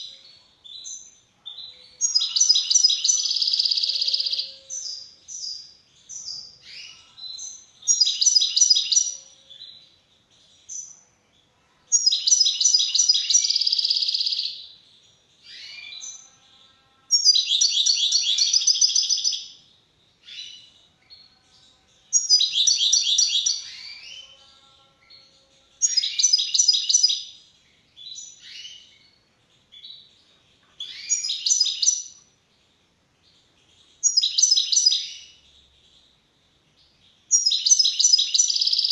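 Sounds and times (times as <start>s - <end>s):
goldfinch singing: 0.0s - 9.8s, 20.2s - 32.3s, 33.3s - 36.0s, 36.8s - 38.9s.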